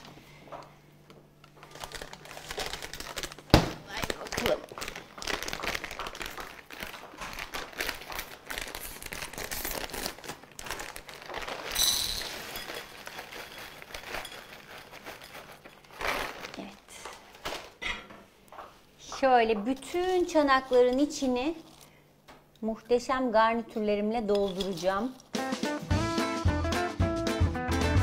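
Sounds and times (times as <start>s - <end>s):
plastic packet crinkling: 1.4s - 17.8s
vegetables emptied into bowl: 10.6s - 16.8s.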